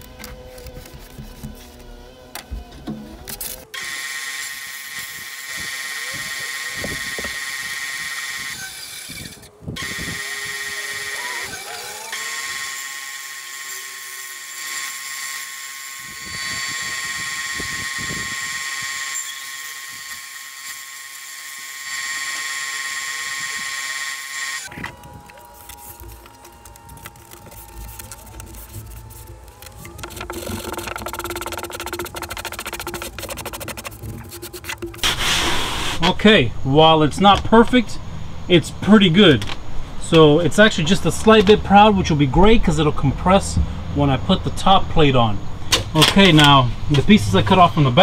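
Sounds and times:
bandsaw whining: 3.5s - 36.1s.

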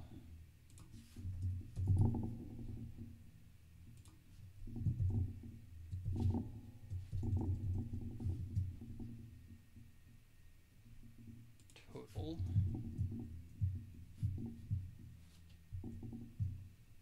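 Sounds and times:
computer keyboard keystrokes: 0.7s - 2.0s, 4.0s - 4.2s.

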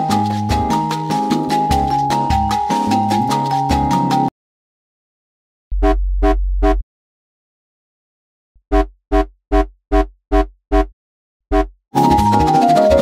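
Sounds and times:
deep sub bass: 5.7s - 6.8s.

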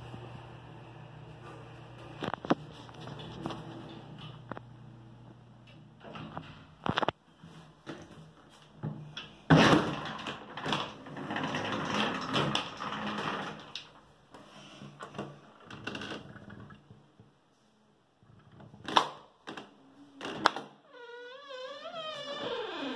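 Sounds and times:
folding door rattling open: 9.5s - 13.8s.

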